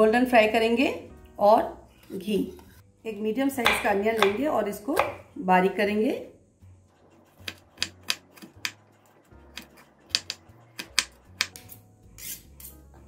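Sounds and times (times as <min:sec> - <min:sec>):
knife chopping on wooden board: 0:03.6 - 0:05.2, 0:07.3 - 0:08.8, 0:09.5 - 0:11.6.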